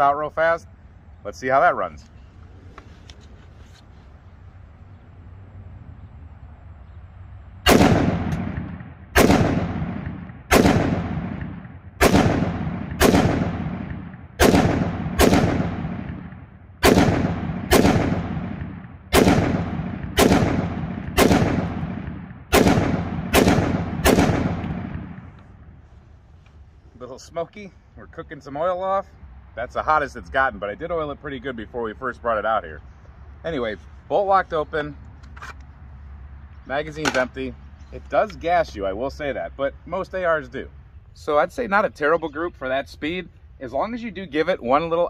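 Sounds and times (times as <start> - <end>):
rifle shots echoing: 7.6 - 25.4.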